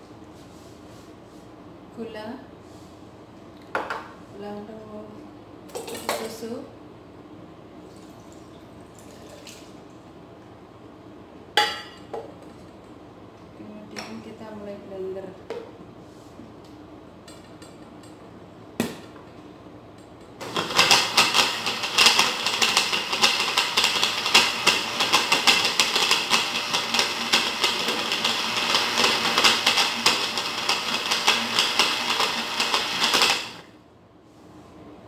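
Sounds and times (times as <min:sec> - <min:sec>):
blender motor running: 0:20.4 - 0:33.7.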